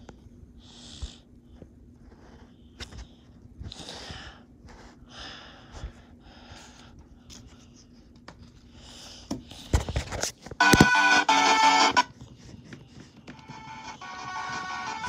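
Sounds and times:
person breathing heavily: 0:00.0 - 0:07.6, 0:08.6 - 0:10.0.

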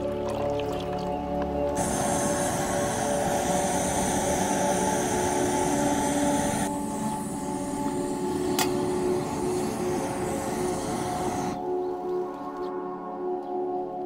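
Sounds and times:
gas stove burning: 0:01.8 - 0:11.6.

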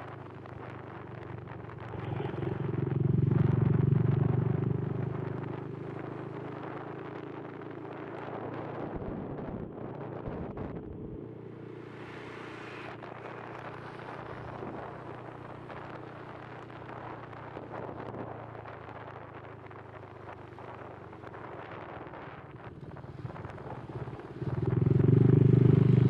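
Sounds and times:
wind noise on microphone: 0:00.0 - 0:11.2, 0:12.7 - 0:26.0
scooter engine running: 0:24.4 - 0:26.0.

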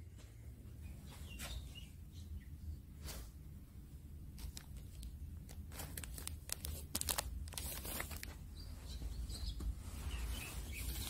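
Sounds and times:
small birds chirping: 0:00.7 - 0:03.0, 0:06.0 - 0:11.0
plastic film crackling: 0:04.4 - 0:08.4.

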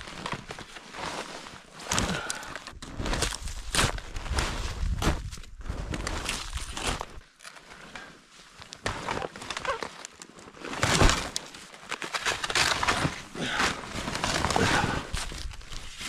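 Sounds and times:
footsteps crunching in snow: 0:02.9 - 0:07.2.

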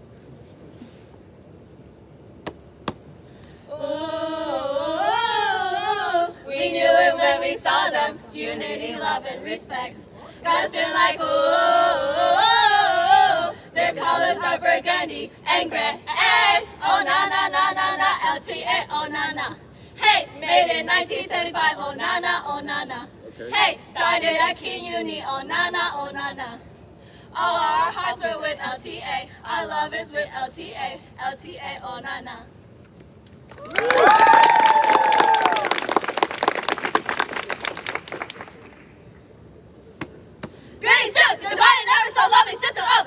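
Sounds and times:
women singing a chant: 0:03.7 - 0:26.7, 0:27.3 - 0:32.5, 0:40.8 - 0:43.0.

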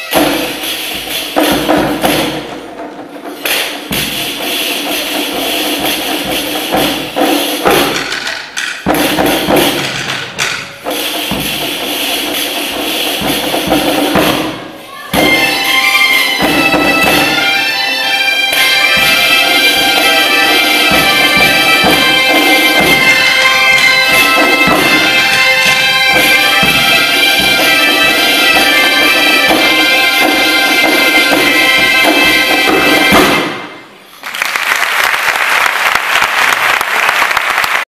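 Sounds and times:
bagpipe band with drums: 0:00.0 - 0:34.1
audience applauding: 0:34.1 - 0:37.9.

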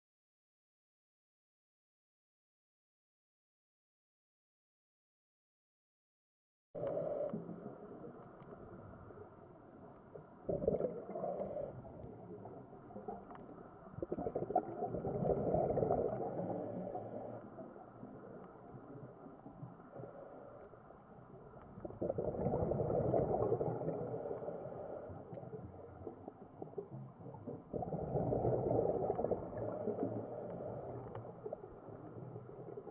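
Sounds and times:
diver exhaling bubbles: 0:10.5 - 0:13.2, 0:13.9 - 0:17.5, 0:21.8 - 0:24.8, 0:27.3 - 0:32.9.

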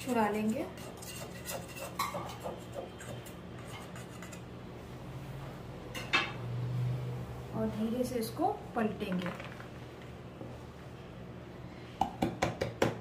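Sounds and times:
knife scraping metal tin: 0:00.0 - 0:04.5.

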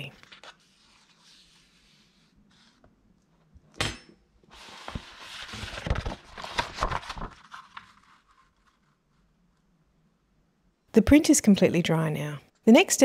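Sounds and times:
paper crackling and rustling: 0:00.0 - 0:02.8, 0:04.5 - 0:09.3.

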